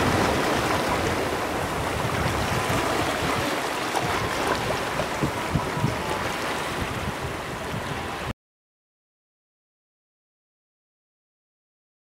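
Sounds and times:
small waves washing over rocks: 0.0s - 8.2s
wind buffeting microphone: 0.0s - 8.3s.

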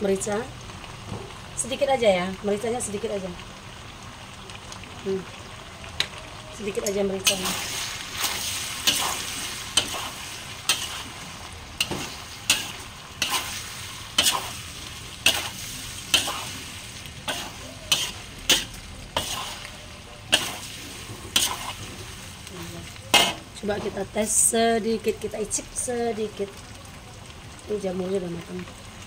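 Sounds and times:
food sizzling: 0.0s - 29.0s
metal spatula scraping wok: 7.2s - 19.7s, 20.3s - 22.3s, 23.1s - 24.0s.

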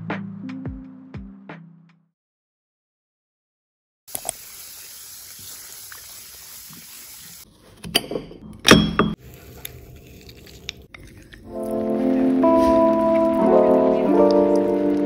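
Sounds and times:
tap water running into metal bowl: 4.1s - 7.2s.

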